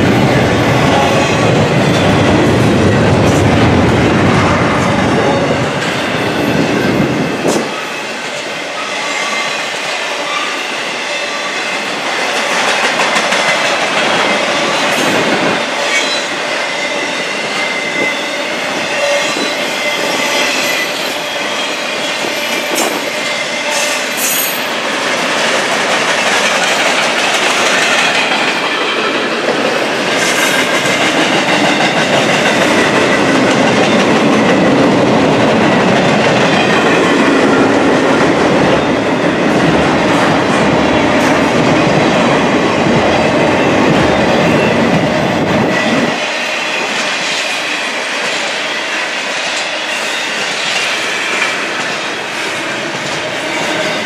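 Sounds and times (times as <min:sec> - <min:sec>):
train wheels rolling on rail: 0:00.0 - 0:54.0
high wheel squeal: 0:05.2 - 0:11.9, 0:14.2 - 0:24.8.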